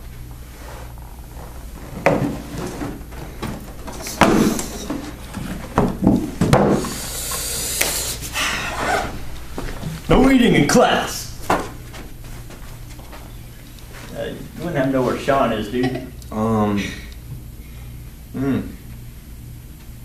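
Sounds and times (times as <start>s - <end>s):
cardboard scraping and rustling: 0.6s - 6.5s.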